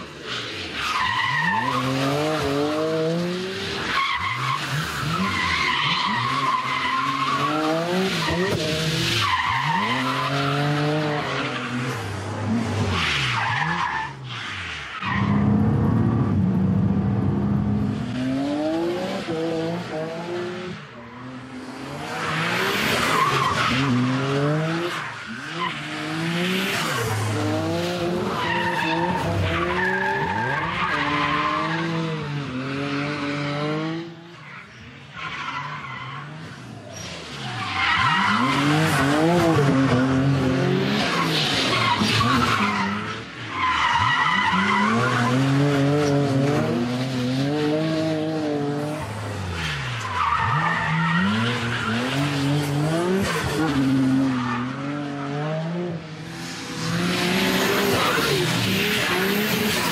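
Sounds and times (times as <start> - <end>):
car engine revving: 37.2 - 59.9.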